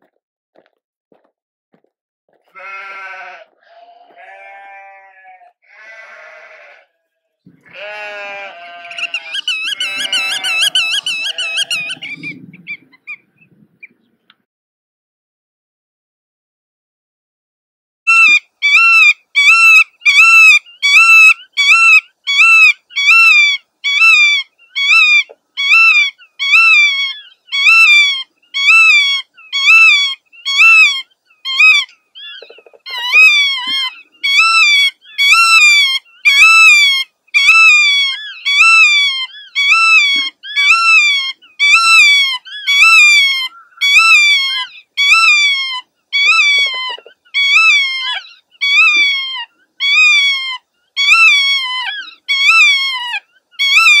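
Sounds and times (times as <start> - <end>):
godwit calling: 7.5 - 14.0, 18.1 - 54.0.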